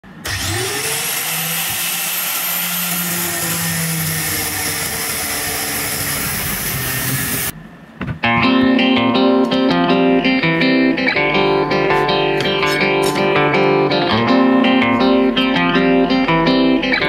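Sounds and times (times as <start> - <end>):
angle grinder cutting metal: 0.1 - 7.5
guitar music: 8.2 - 17.0.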